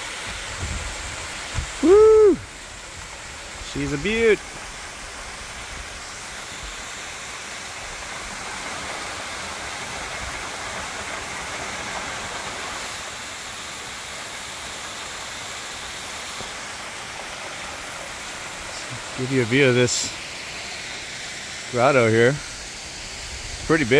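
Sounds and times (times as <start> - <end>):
waterfall rushing: 0.0 - 23.9.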